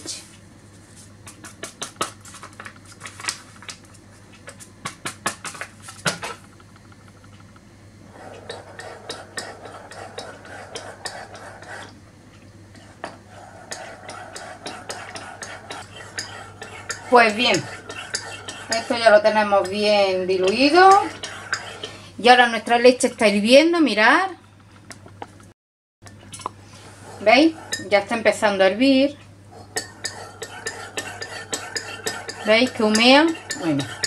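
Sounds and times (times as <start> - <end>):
spoon scraping inside mug: 8.1 - 12.0, 12.8 - 22.0, 26.7 - 28.4, 29.5 - 34.0.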